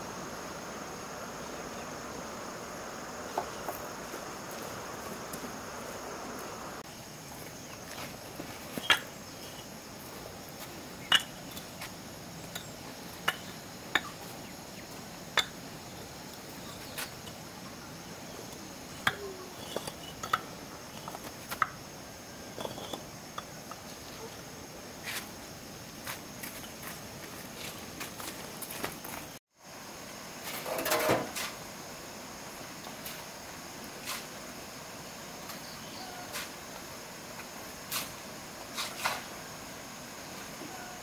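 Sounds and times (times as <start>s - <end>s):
crickets chirring: 0.0s - 41.0s
rustling noise: 25.0s - 29.4s, 36.2s - 39.4s.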